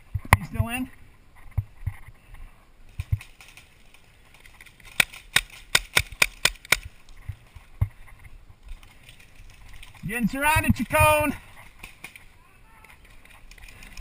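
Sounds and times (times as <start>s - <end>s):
paintball marker shots: 5.0s - 6.9s.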